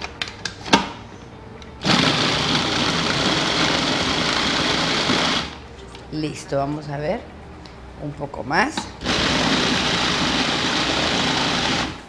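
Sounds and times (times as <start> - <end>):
food processor motor running: 1.8 - 5.6, 9.0 - 12.0.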